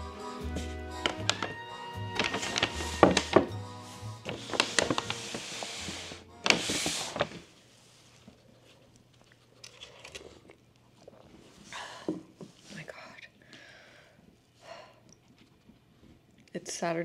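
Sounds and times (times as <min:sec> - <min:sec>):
soft background music: 0:00.0 - 0:07.4.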